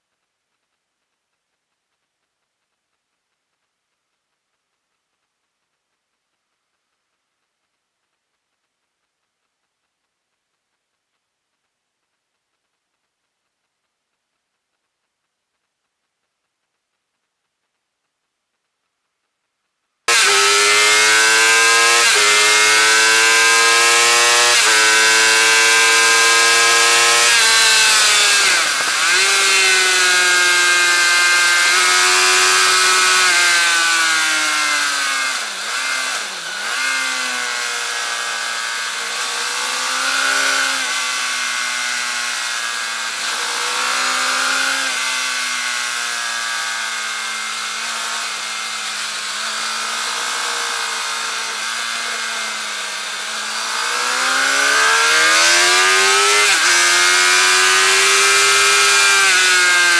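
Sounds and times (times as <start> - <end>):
motorcycle engine revving: 20.1 - 59.9.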